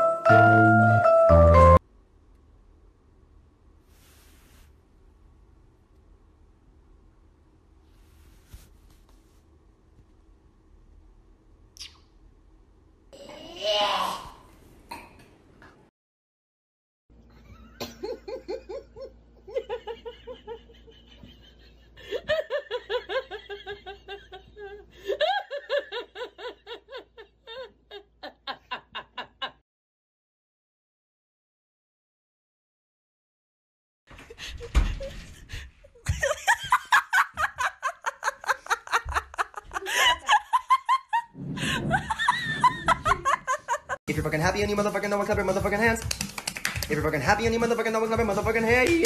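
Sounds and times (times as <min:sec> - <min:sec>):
person laughing hard: 0:17.5 - 0:29.6, 0:36.0 - 0:44.0.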